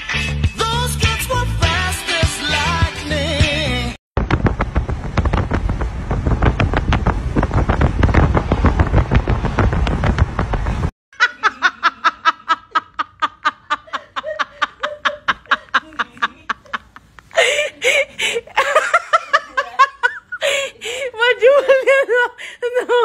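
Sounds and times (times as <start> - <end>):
wind buffeting: 4.2 - 10.9
person laughing in bursts: 11.2 - 23.0.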